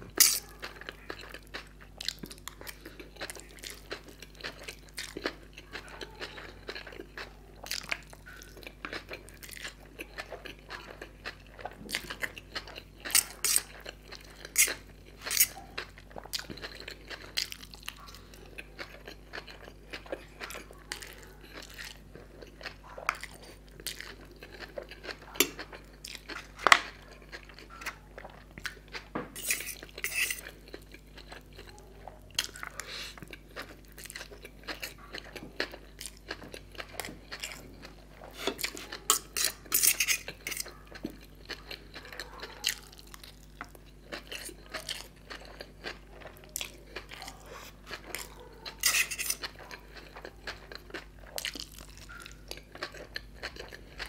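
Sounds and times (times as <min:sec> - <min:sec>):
wet chewing: 0:00.1 - 0:54.0
metal fork clinking on a plate: 0:29.4 - 0:30.4, 0:39.1 - 0:40.7, 0:48.8 - 0:49.4.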